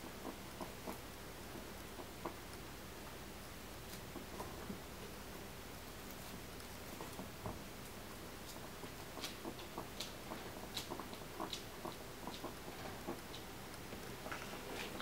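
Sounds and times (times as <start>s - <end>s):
guinea pig teeth clicking: 6.0s - 15.0s.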